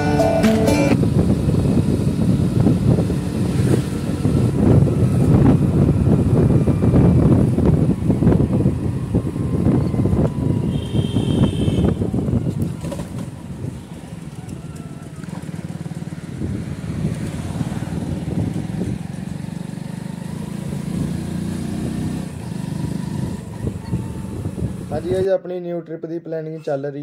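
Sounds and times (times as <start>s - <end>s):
wind buffeting microphone: 1.0s - 25.2s
motorcycle engine running: 13.0s - 25.0s.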